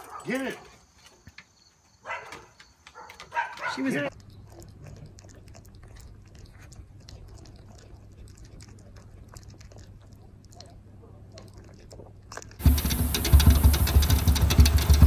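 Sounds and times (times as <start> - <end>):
dog gnawing on a chew: 3.0 - 12.7.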